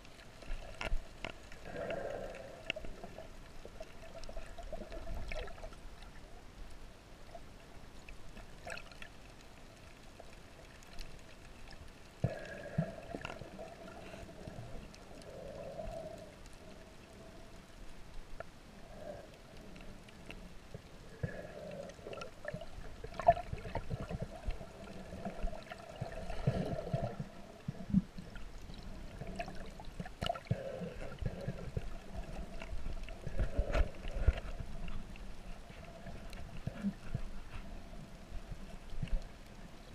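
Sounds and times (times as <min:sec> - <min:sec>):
muffled underwater bubbling: 0:12.2 - 0:17.4, 0:18.8 - 0:39.9.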